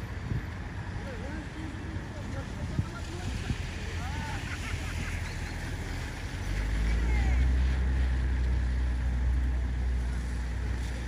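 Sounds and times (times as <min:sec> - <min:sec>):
outdoor traffic noise: 0:00.0 - 0:11.0
passing vehicle engine rumble: 0:00.0 - 0:11.0.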